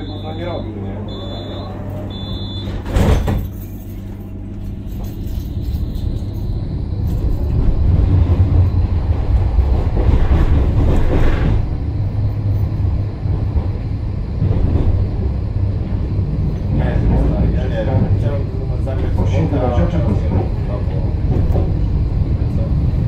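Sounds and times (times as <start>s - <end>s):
tram rumbling past: 0.0s - 23.0s.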